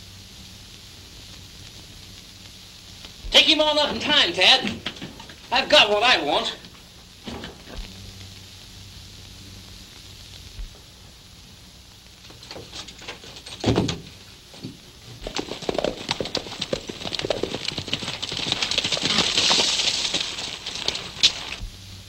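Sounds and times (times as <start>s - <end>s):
horse hooves clip-clopping on dirt: 12.2s - 21.7s.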